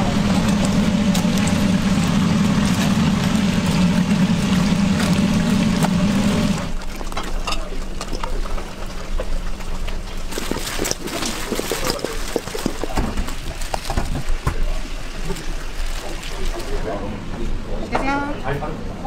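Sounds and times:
frying hiss: 0.0 - 6.8
fryer and exhaust hood hum: 0.0 - 19.0.

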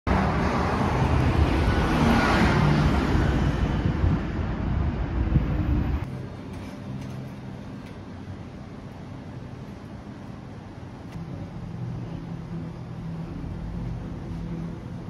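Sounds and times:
car passing: 0.1 - 6.1
wind rumble on microphone: 0.1 - 6.1
street traffic: 0.1 - 15.0.

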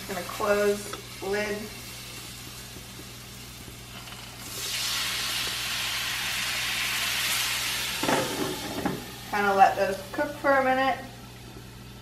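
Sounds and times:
loud sizzle of steam: 0.0 - 11.8
broth poured into frying pan: 3.7 - 9.4.

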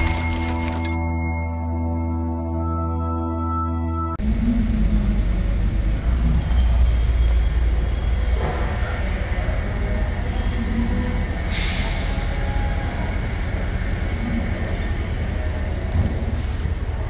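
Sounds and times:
diesel engine idling: 4.2 - 17.0.

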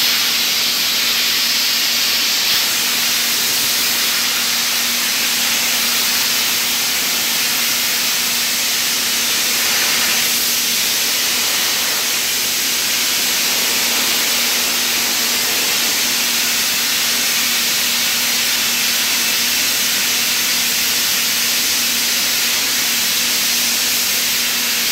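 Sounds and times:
abrasive blasting hiss on metal: 0.0 - 24.9.

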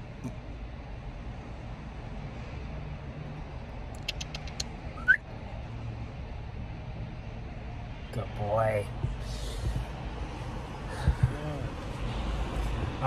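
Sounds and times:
low hum inside car: 0.0 - 13.0
small clicks: 3.9 - 4.7.

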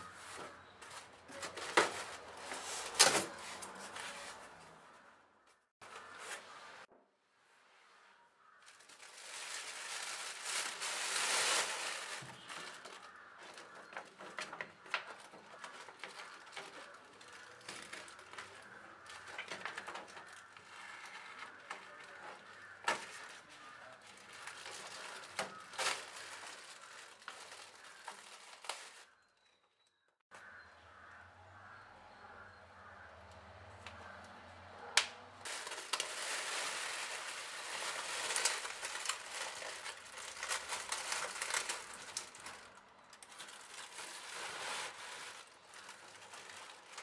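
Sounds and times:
plastic packaging crinkling: 8.6 - 29.1, 35.4 - 47.0.

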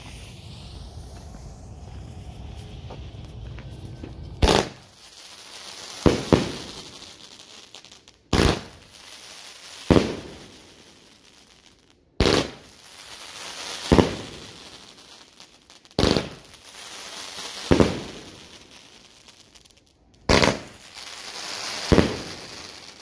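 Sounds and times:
firework launch reports: 0.0 - 7.2.

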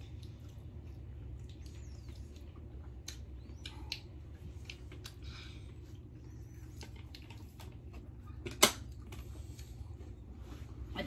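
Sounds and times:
steady low hum: 0.0 - 11.0
small squeaks and clicks: 1.4 - 5.2.

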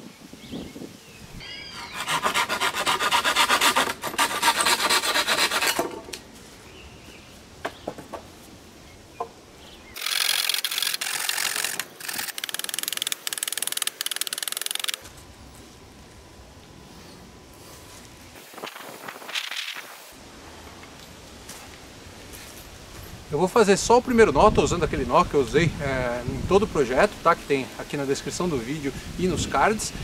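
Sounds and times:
fast rasping scraping strokes: 1.7 - 6.0.

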